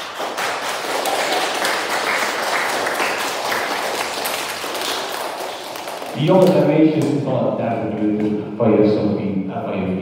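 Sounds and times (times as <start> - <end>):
children applauding: 0.0 - 6.6.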